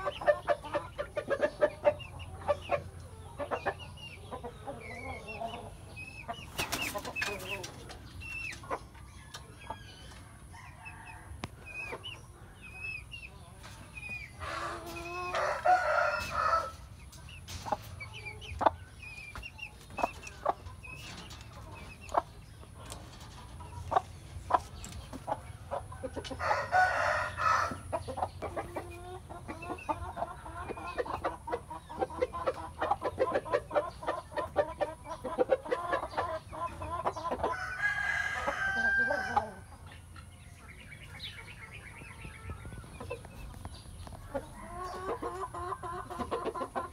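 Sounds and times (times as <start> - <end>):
chickens clucking: 0.0 - 46.9
roosters crowing: 9.7 - 11.8, 14.4 - 17.6, 25.9 - 27.9, 37.4 - 39.7.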